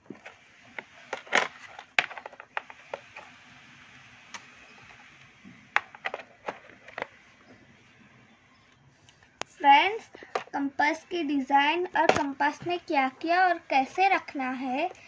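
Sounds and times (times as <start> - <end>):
plastic box clicks and knocks: 0.1 - 3.0, 5.8 - 7.1, 10.2 - 10.5, 12.0 - 12.7.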